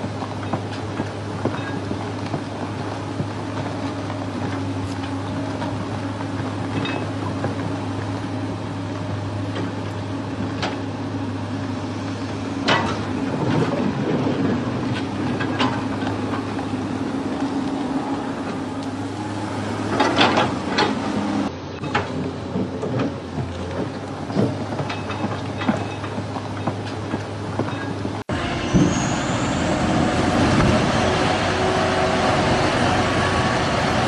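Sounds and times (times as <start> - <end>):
machinery humming: 28.3 - 34.0.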